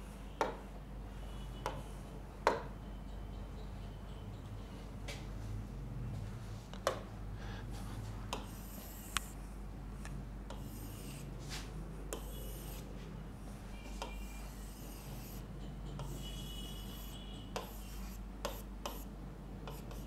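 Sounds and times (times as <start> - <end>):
drawing strokes on a board: 8.3 - 9.6, 10.5 - 13.0, 13.6 - 20.0.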